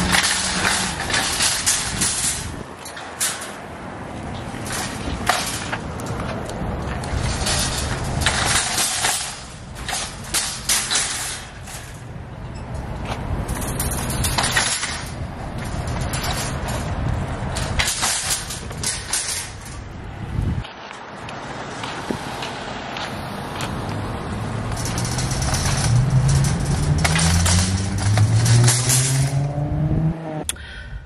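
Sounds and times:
shopping cart wheels rumbling: 0:00.0 - 0:03.6, 0:04.3 - 0:12.0, 0:13.4 - 0:19.9, 0:24.4 - 0:29.5
cart frame rattling and clanking: 0:00.0 - 0:20.6, 0:23.6 - 0:29.8.

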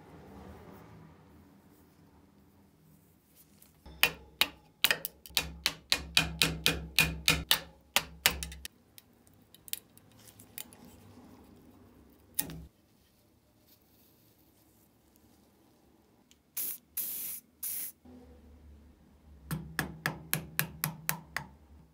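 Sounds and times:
hammer striking steel chisel: 0:03.9 - 0:08.7.

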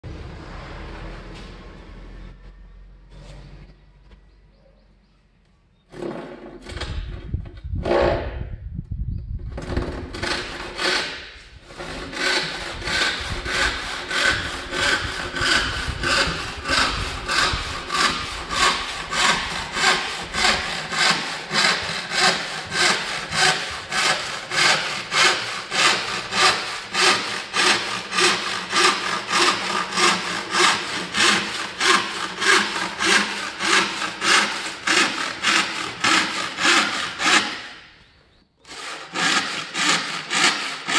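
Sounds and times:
handsaw cutting wooden board: 0:09.6 - 0:37.9, 0:38.7 - 0:40.9.

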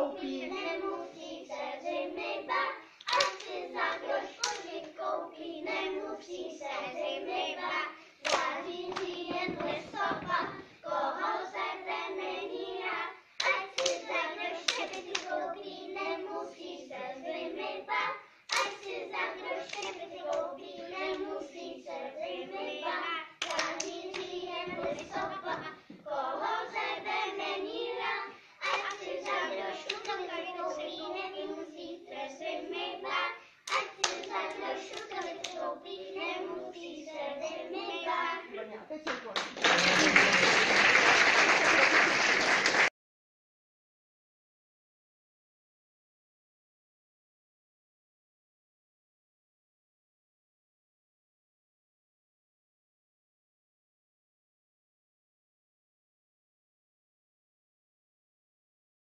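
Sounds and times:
children singing: 0:00.0 - 0:38.7
hands clapping: 0:03.0 - 0:04.8, 0:08.2 - 0:10.6, 0:12.8 - 0:15.4, 0:18.5 - 0:20.4, 0:23.4 - 0:26.0, 0:28.6 - 0:30.2, 0:33.6 - 0:35.6, 0:39.0 - 0:42.9.

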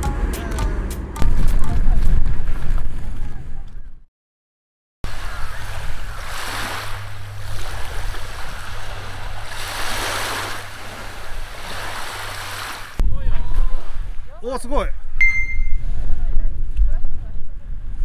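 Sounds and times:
low hum: 0:00.0 - 0:04.0
small waves washing ashore: 0:05.1 - 0:13.0.

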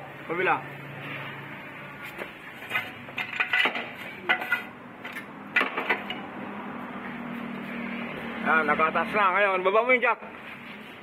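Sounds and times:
metallic clinks and clanks: 0:02.6 - 0:06.3.

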